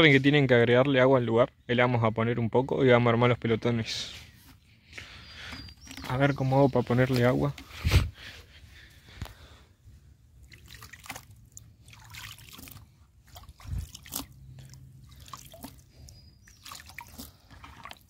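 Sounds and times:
water splashing into bucket: 0:10.4 - 0:18.0.

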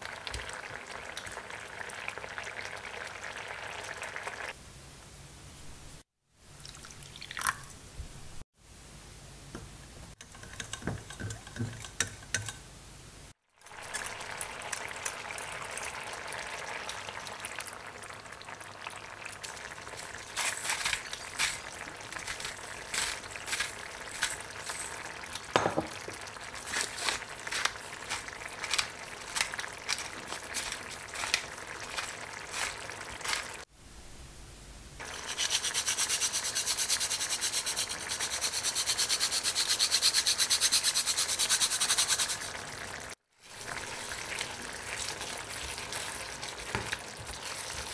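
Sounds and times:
liquid simmering in a pan: 0:00.0 - 0:04.6, 0:13.4 - 0:20.4, 0:21.0 - 0:33.7, 0:41.8 - 0:47.9
hand mill grinding: 0:22.2 - 0:24.9, 0:26.6 - 0:33.6, 0:35.0 - 0:42.5.

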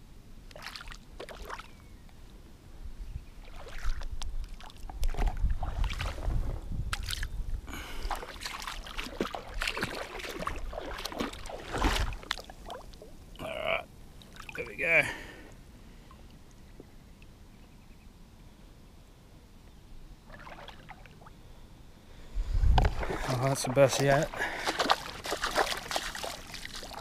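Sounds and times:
splashing in shallow water: 0:00.5 - 0:01.8, 0:03.4 - 0:13.4, 0:14.2 - 0:14.7, 0:20.3 - 0:21.4, 0:22.8 - 0:27.0.

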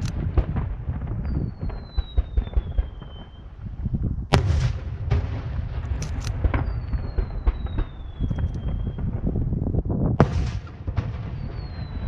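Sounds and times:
crackling firework pops: 0:00.0 - 0:03.6, 0:04.3 - 0:09.6, 0:10.2 - 0:12.0
sharp loud firework bang: 0:04.3 - 0:05.8, 0:10.2 - 0:12.0
firework launch and burst thumps: 0:04.3 - 0:09.4, 0:10.2 - 0:12.0.

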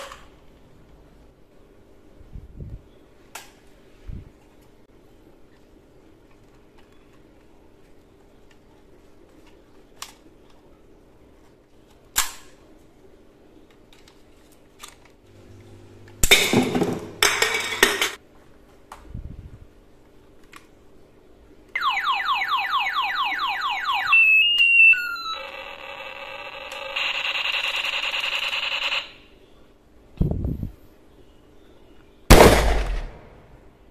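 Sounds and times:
alarm-like electronic tone: 0:21.8 - 0:29.2
toy gun firing bursts: 0:26.8 - 0:29.2.

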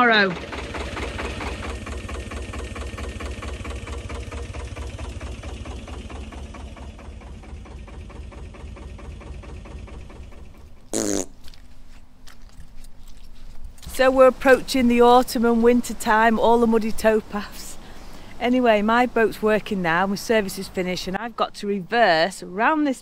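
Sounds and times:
diesel engine running: 0:00.0 - 0:10.9.

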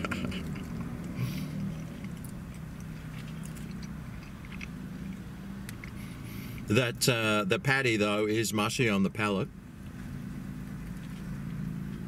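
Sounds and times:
person chewing food: 0:00.0 - 0:06.7, 0:10.6 - 0:12.0.

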